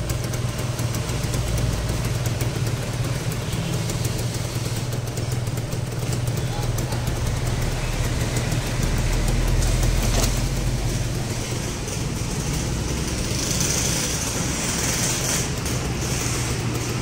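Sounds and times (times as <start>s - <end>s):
motorcycle engine idling: 0.0s - 17.0s
hiss: 3.1s - 5.4s, 13.1s - 17.0s.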